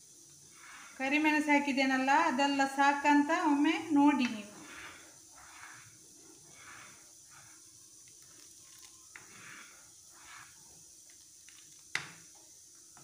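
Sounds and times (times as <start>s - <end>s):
spoon stirring soup: 4.2s - 12.3s.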